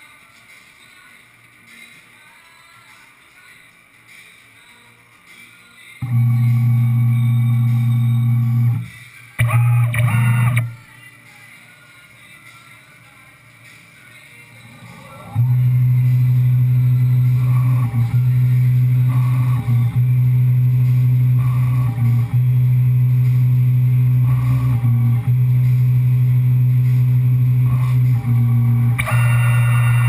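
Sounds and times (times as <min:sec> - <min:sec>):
milling machine hum: 0:06.0 - 0:10.8, 0:14.6 - 0:30.0.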